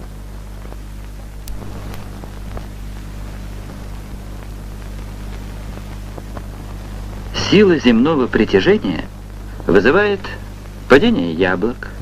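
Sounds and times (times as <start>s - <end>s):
faint clicks and crackles: 0.0s - 11.1s
low hum and hiss: 0.0s - 12.0s.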